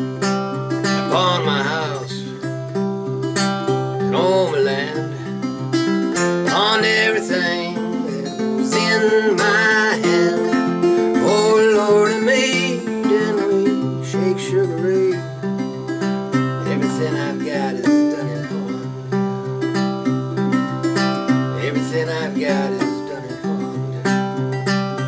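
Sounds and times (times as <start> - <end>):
fingerstyle blues acoustic guitar: 0.0 - 25.0.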